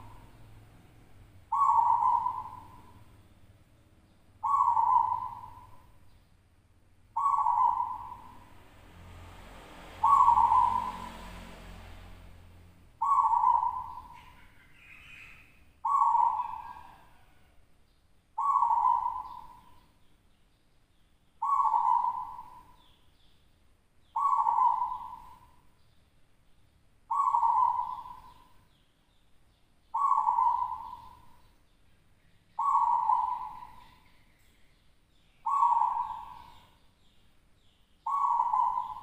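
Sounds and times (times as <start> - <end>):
dove cooing: 0.0 - 0.7, 1.5 - 3.1, 4.4 - 6.0, 7.2 - 8.5, 9.9 - 11.3, 13.0 - 17.6, 18.4 - 19.8, 21.4 - 22.9, 24.2 - 25.6, 27.1 - 28.6, 29.9 - 31.4, 32.6 - 34.0, 35.4 - 36.7, 38.0 - 39.0.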